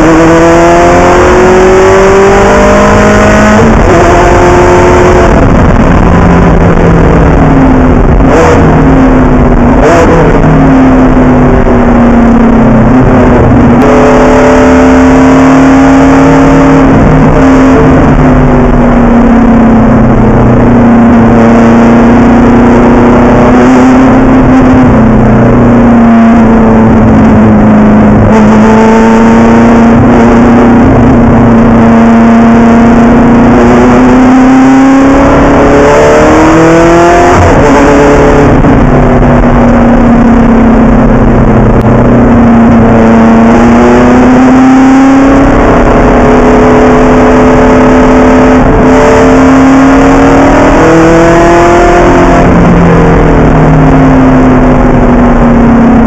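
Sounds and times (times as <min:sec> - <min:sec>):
race car engine running hard: 0:00.0 - 0:56.0.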